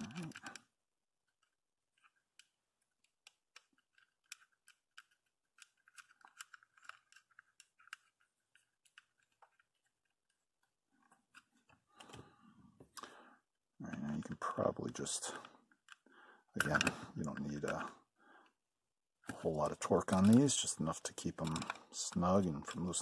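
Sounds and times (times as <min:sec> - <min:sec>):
small clicks and scrapes of fingers: 0:00.0 - 0:12.2.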